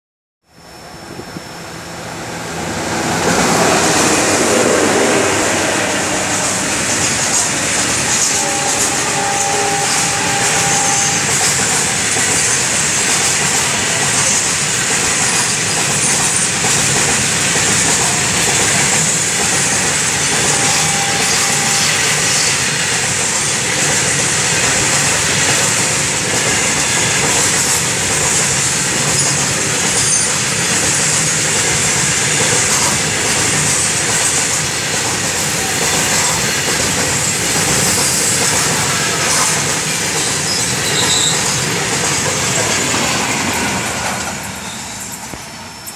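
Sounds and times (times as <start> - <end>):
diesel locomotives running past: 0.5 - 45.9
freight wagons rolling on rails: 6.1 - 45.9
faint wheel squeals: 40.4 - 41.6.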